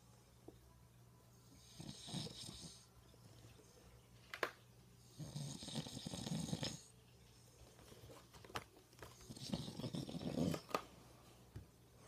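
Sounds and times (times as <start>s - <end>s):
man snoring: 5.2s - 6.8s.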